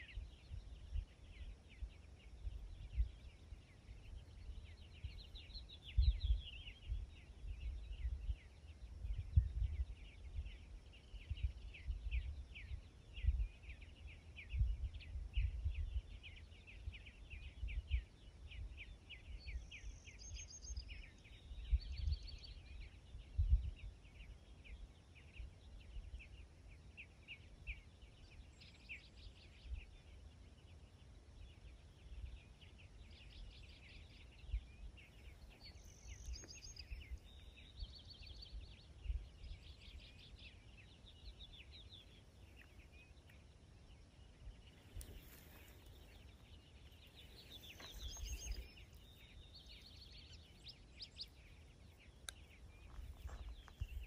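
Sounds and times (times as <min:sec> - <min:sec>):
low rumbles on microphone: 0:00.0 - 0:19.8, 0:20.8 - 0:26.3, 0:44.4 - 0:54.0
songbirds chips and calls: 0:00.0 - 0:54.0.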